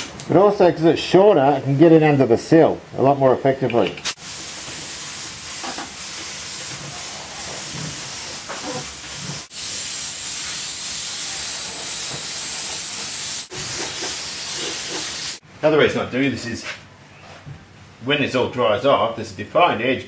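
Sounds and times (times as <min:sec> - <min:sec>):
spray gun hissing: 0:04.1 - 0:15.4.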